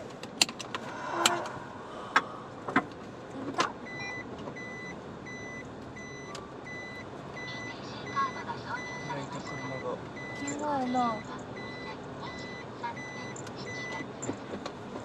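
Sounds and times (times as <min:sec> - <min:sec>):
reverse warning beeper: 0:03.8 - 0:14.1.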